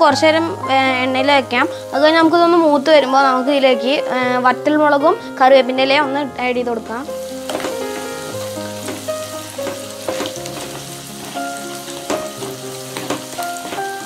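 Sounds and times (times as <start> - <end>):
background music: 0.0 - 14.0
onions sizzling in hot oil: 0.7 - 4.3, 6.9 - 14.0
wooden spatula knocking on pan: 8.8 - 10.8, 12.0 - 14.0.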